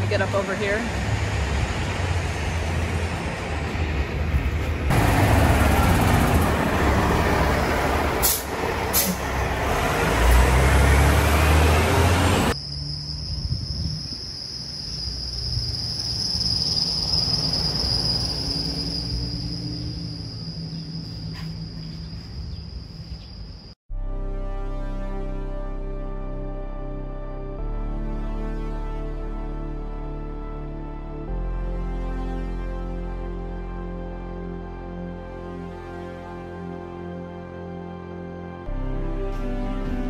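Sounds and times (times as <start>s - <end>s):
heavy truck rumbling past: 0.0s - 13.9s.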